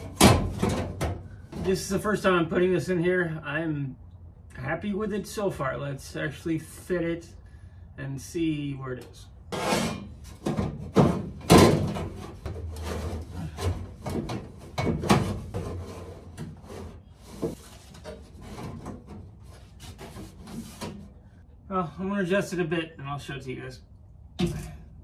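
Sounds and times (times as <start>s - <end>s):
sheet metal scraping: 9.5s - 21.2s.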